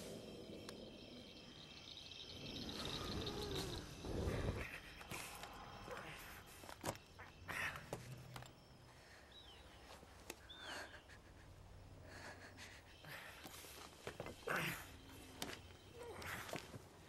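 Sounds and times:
faint chirps: 0:00.0 - 0:17.0.

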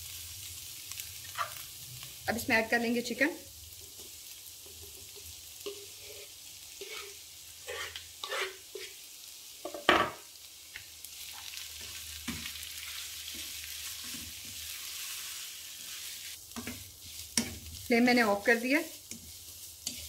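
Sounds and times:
food sizzling in oil: 0:00.0 - 0:20.0
wooden spatula scraping pan: 0:05.6 - 0:09.0.

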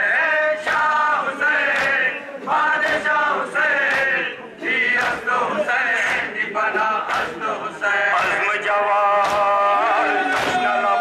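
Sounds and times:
men chanting in unison: 0:00.0 - 0:11.0
hands slapping chests: 0:00.6 - 0:01.0, 0:01.6 - 0:02.2, 0:02.8 - 0:03.2, 0:03.8 - 0:04.3, 0:04.9 - 0:05.4, 0:06.0 - 0:06.3, 0:07.0 - 0:07.5, 0:08.1 - 0:08.5, 0:09.2 - 0:09.6, 0:10.3 - 0:10.7.

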